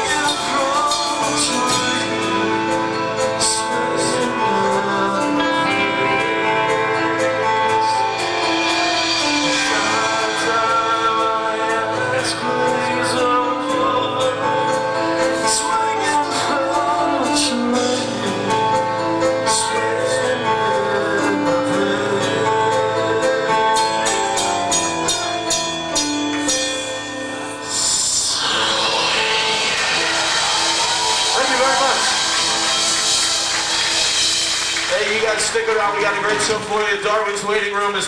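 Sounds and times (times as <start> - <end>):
drums and cymbal hits: 0.0 - 4.8, 6.6 - 13.8, 27.7 - 38.0
person singing: 0.0 - 25.3, 27.3 - 35.3
metal band playing: 0.0 - 26.2, 27.6 - 38.0.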